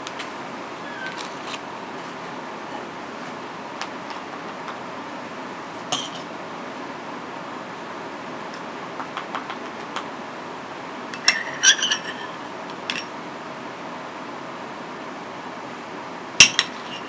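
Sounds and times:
knife clinking on ceramic plate: 11.2 - 13.1.

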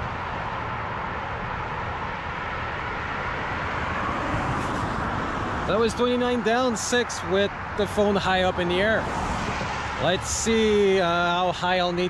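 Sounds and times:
wind rumbling on microphone: 0.0 - 5.7, 7.3 - 10.8
highway traffic: 0.0 - 12.0.

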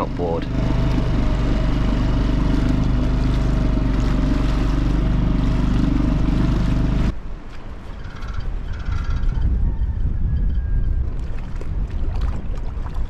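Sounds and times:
outboard motor running: 0.0 - 7.1.

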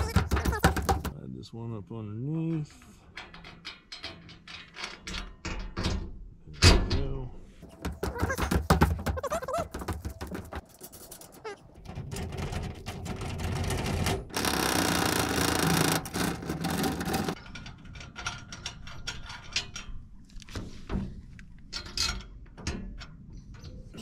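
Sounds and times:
metal scraping on aluminium: 7.6 - 20.0.

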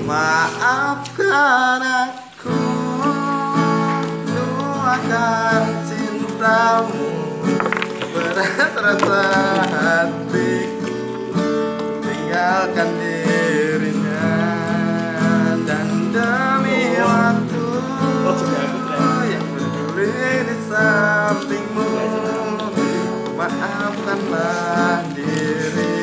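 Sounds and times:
acoustic guitar strumming chords: 0.0 - 26.0
man singing: 0.0 - 26.0.

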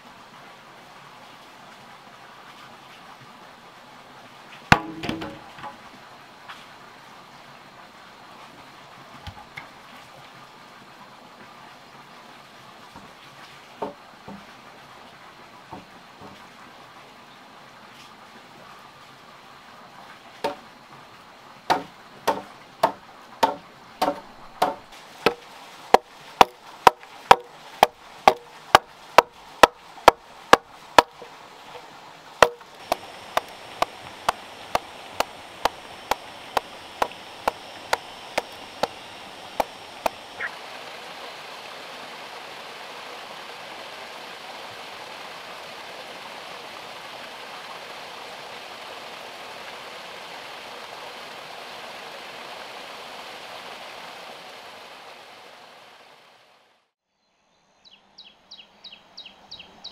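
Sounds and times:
steady hiss: 0.0 - 56.2
wood chopping: 4.7 - 5.8, 20.4 - 20.6, 21.7 - 31.2, 32.4 - 40.5.

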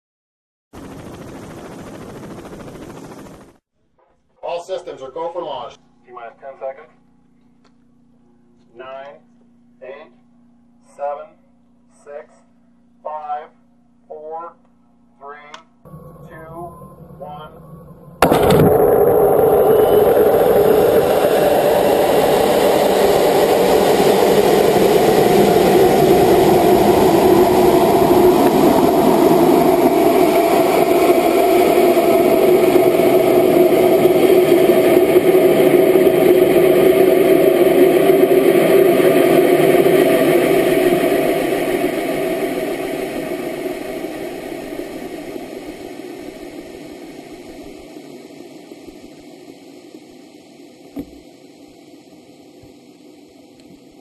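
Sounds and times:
rocket motor rushing: 15.9 - 50.1.

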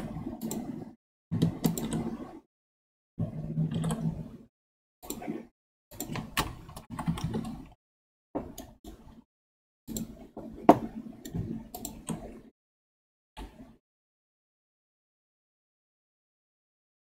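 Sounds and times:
keyboard and mouse clicking: 0.3 - 0.8, 1.4 - 2.4, 3.7 - 4.2, 5.0 - 7.8, 8.4 - 9.0, 9.9 - 12.5.

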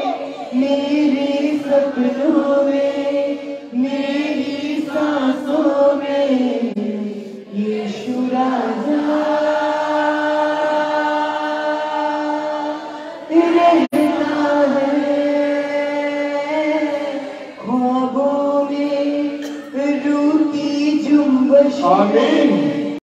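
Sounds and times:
congregation singing: 0.0 - 23.0
man singing into a microphone: 17.6 - 23.0.

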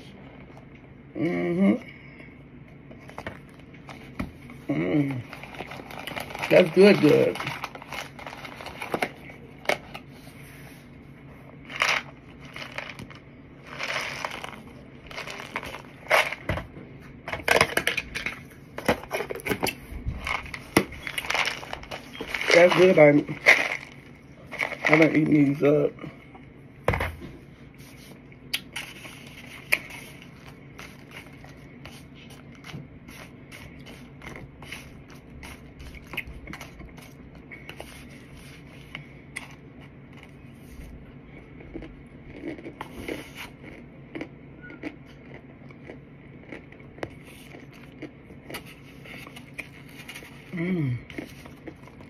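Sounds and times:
chewing crunchy food: 28.4 - 52.0.

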